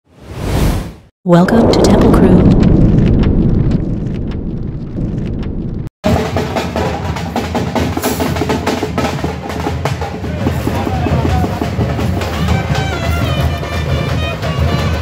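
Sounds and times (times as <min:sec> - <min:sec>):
low rumble: 0:00.4 - 0:05.9
frame drums beaten fast: 0:06.0 - 0:15.0.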